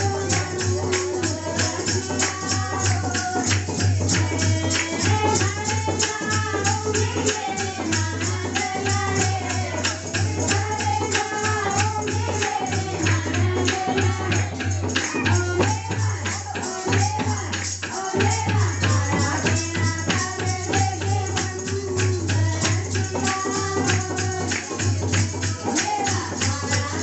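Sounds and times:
person singing: 0.0 - 1.8, 15.0 - 15.7
hand percussion with jingles: 0.0 - 27.0.

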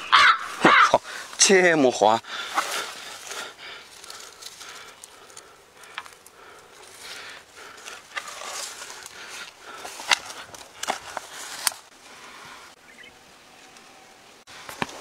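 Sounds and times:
rustling of grass and plants: 0.0 - 15.0.

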